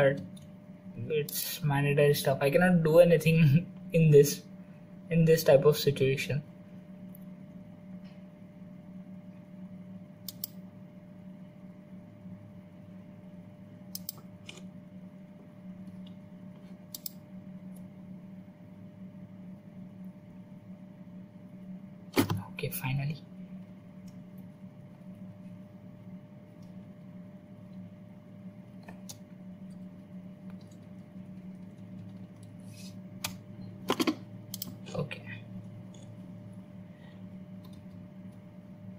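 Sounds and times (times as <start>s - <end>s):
low hum: 0.0s - 38.9s
computer mouse clicks: 10.2s - 10.6s, 13.9s - 14.7s, 16.9s - 17.2s, 34.5s - 34.8s.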